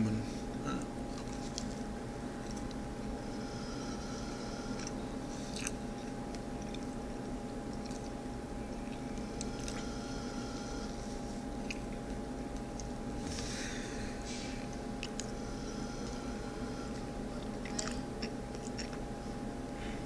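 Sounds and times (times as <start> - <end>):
room hum: 0.0 - 20.0
person chewing: 0.7 - 2.8, 4.7 - 7.0, 7.7 - 10.0, 11.5 - 13.7, 14.5 - 15.4, 16.9 - 19.1
thin electrical tone: 2.5 - 5.7, 8.6 - 11.9, 13.2 - 18.3.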